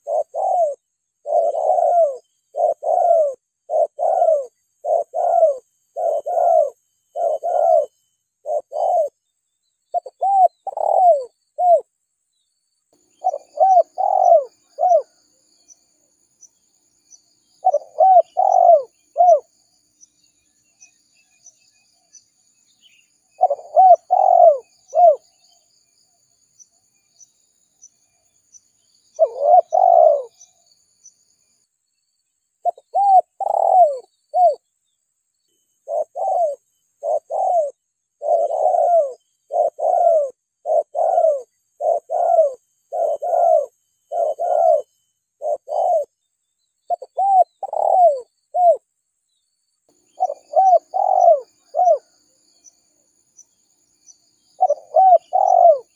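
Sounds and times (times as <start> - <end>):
dove cooing: 0.0 - 9.2, 9.9 - 11.9, 13.2 - 15.2, 17.5 - 19.5, 22.8 - 25.4, 29.1 - 30.5, 32.6 - 34.6, 35.8 - 46.2, 46.9 - 48.8, 50.1 - 52.1, 54.6 - 55.9.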